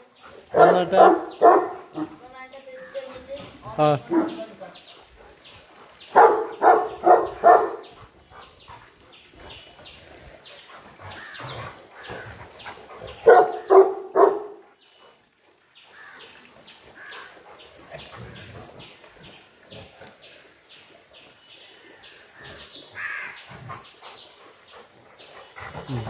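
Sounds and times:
dog barking: 0:00.5 - 0:02.2, 0:04.1 - 0:04.4, 0:06.1 - 0:08.0, 0:13.2 - 0:14.6.

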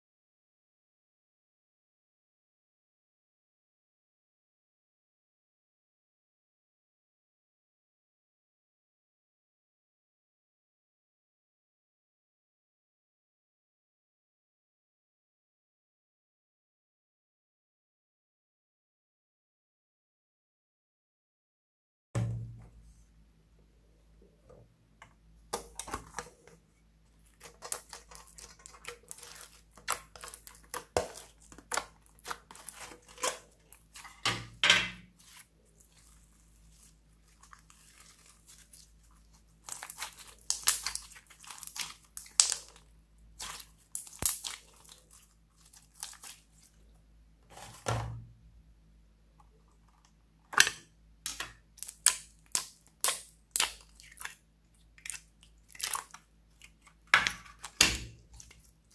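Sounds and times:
slime squelching and crackling: 0:25.6 - 0:34.3, 0:35.1 - 0:46.9, 0:51.3 - 0:58.9.

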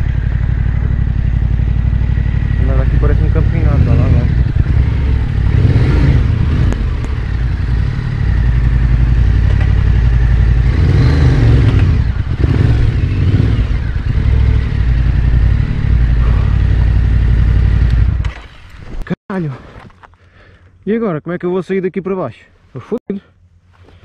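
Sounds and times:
motorcycle engine revving: 0:00.0 - 0:18.7.

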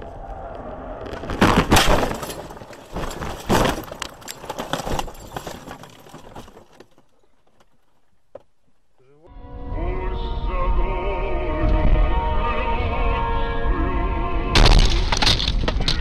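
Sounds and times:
branches scraping over car body: 0:01.1 - 0:08.2
car crashing into brush: 0:01.2 - 0:07.0.

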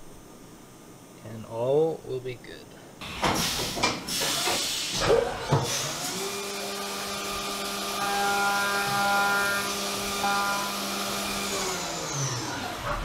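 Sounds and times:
spindle whine: 0:06.0 - 0:13.0.

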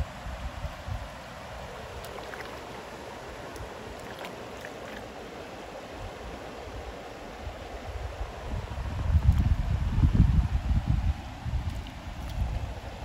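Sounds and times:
wind rumble on microphone: 0:00.0 - 0:02.8, 0:06.0 - 0:13.0
creek water rushing: 0:00.0 - 0:13.0.

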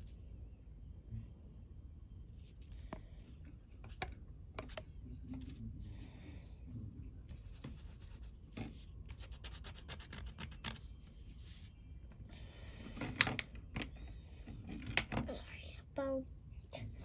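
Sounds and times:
crayon scratching on paper: 0:07.4 - 0:10.8.

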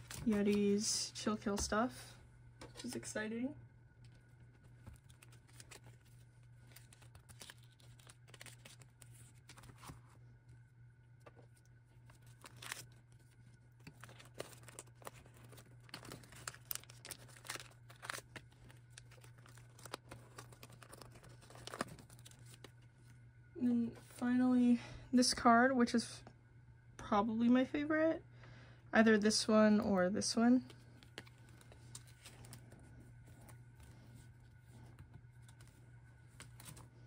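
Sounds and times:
plastic sleeves crinkling: 0:00.0 - 0:00.9, 0:04.0 - 0:10.2, 0:11.2 - 0:23.2, 0:30.5 - 0:37.0
steady low hum: 0:00.0 - 0:37.0.

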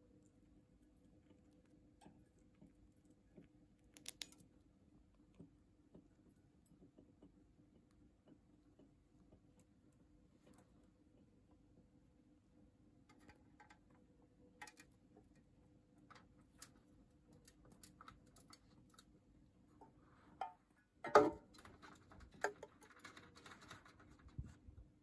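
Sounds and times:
faint steady hum: 0:00.0 - 0:25.0
bird pecking seeds from dish: 0:01.1 - 0:04.5, 0:21.5 - 0:24.3.

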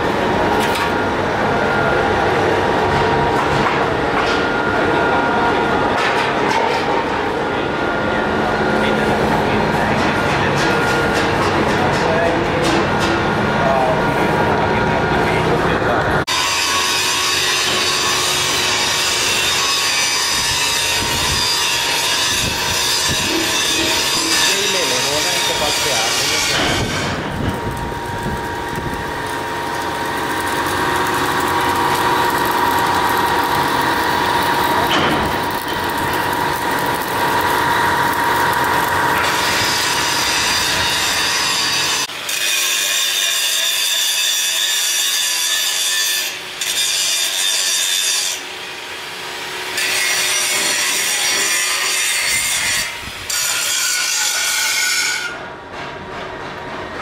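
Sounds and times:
constant machine tone: 0:00.0 - 0:42.3
workshop machinery rasping: 0:00.0 - 0:57.0.

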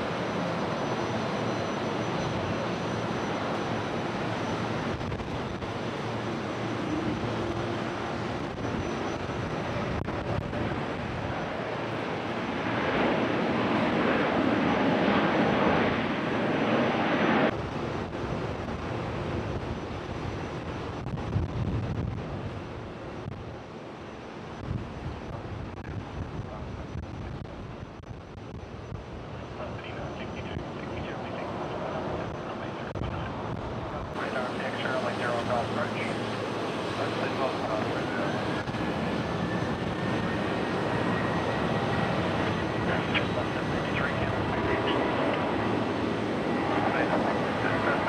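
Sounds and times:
jet engines rumbling: 0:00.0 - 0:48.0
wind noise on microphone: 0:04.6 - 0:12.1, 0:17.4 - 0:23.6, 0:24.5 - 0:29.5, 0:31.9 - 0:34.2.

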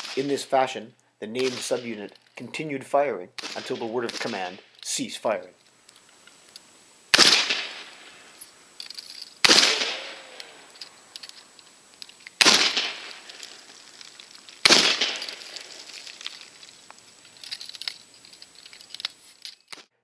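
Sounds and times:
rifle shots: 0:01.4 - 0:02.0, 0:03.4 - 0:04.6, 0:07.1 - 0:08.4, 0:09.4 - 0:10.8, 0:12.4 - 0:13.7, 0:14.6 - 0:16.4.

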